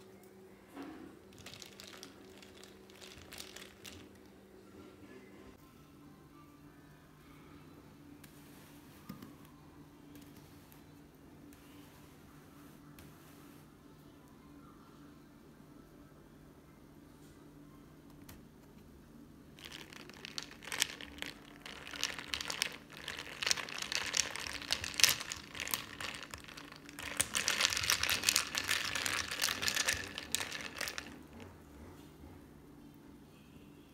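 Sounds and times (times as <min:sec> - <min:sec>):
ice cubes clinking in glass: 0:19.6 - 0:31.3.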